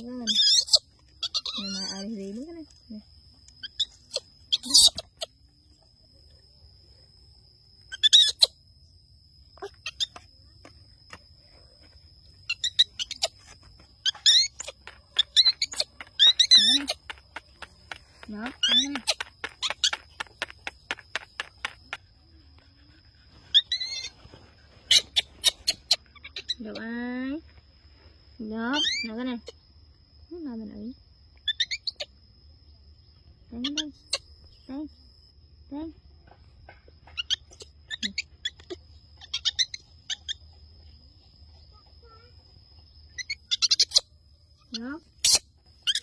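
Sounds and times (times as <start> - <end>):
baby monkey squealing: 0.0 - 2.2, 3.6 - 5.4, 7.9 - 8.6, 9.6 - 10.2, 12.4 - 17.4, 18.4 - 20.2, 23.5 - 24.2, 24.9 - 26.7, 28.7 - 29.2, 31.4 - 32.1, 37.2 - 40.4, 43.1 - 46.0.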